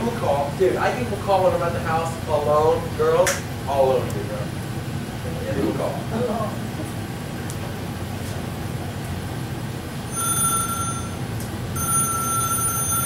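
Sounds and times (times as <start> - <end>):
low room hum: 0.0 - 13.0
telephone ringing tone: 10.1 - 13.0.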